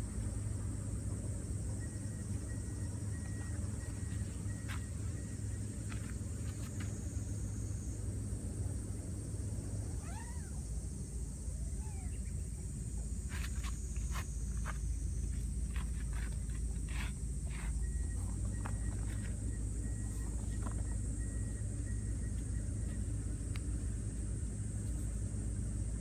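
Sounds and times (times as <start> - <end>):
low outdoor rumble: 0.0 - 26.0
animal calls: 11.5 - 12.5.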